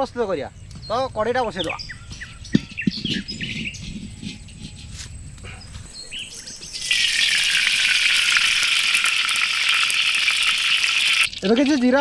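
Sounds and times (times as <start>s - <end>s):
birds chirping: 0.0s - 12.0s
food sizzling in hot oil: 6.2s - 12.0s.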